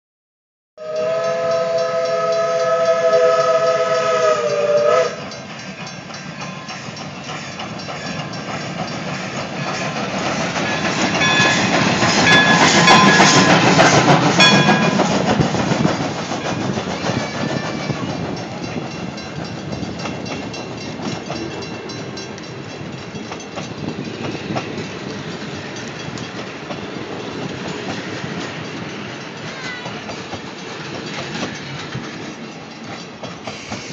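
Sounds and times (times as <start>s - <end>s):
steam locomotive whistle: 0.8s - 5.6s
locomotive running past: 0.8s - 33.9s
train wheels clattering on rails: 1.0s - 33.9s.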